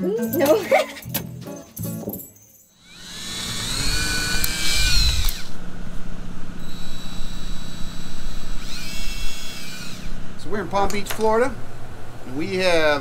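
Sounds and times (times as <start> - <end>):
cordless drill motor whine: 2.8 - 5.7, 6.4 - 10.4.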